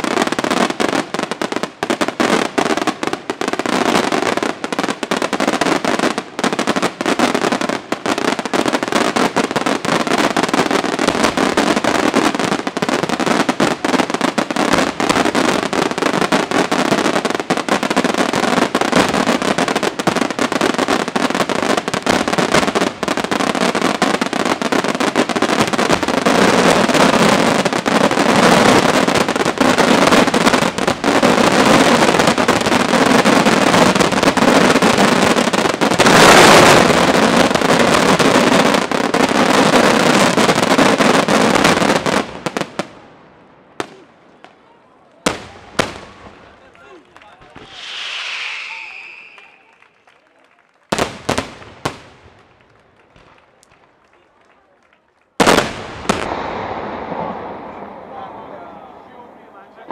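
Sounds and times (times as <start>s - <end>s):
firework crackle: 0.0s - 44.5s, 45.2s - 59.9s
aerial firework shells bursting: 47.5s - 50.0s, 55.4s - 59.9s.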